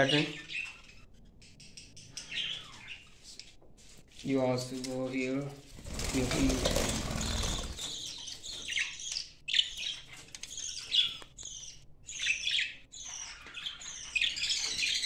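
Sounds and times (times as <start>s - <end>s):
budgerigars chirping: 0.0s - 1.3s, 2.0s - 3.2s, 6.8s - 15.0s.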